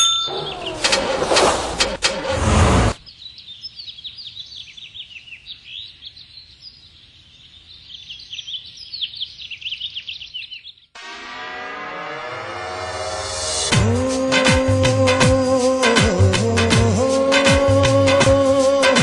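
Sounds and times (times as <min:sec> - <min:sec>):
small birds chirping rapidly: 0:00.3 - 0:00.8, 0:03.0 - 0:11.0
loud rushing noise: 0:01.1 - 0:03.0.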